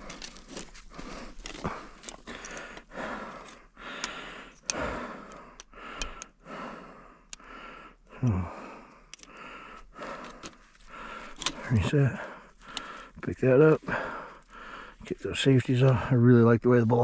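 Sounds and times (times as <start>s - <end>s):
man breathing heavily: 0.0s - 16.2s
man grunting: 8.2s - 8.6s.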